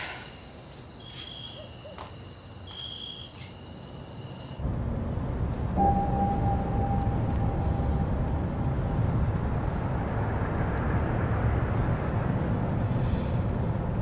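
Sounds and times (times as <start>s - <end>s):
insects chirring: 0.0s - 4.6s
low rumble: 4.6s - 14.0s
steady hum: 4.6s - 14.0s.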